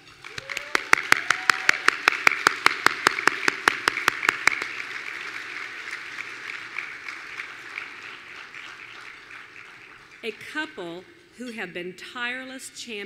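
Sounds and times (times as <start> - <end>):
audience applause: 0.0 - 10.6
person clapping close: 0.2 - 10.2.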